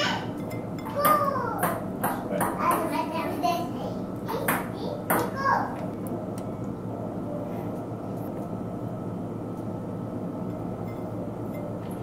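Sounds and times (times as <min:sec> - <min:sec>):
steady low machine hum: 0:00.0 - 0:12.0.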